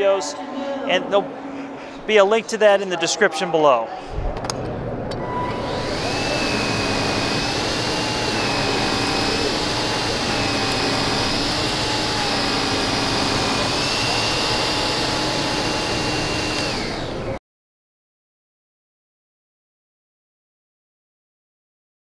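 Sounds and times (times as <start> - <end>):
vacuum cleaner motor whine: 5.2 - 17.4.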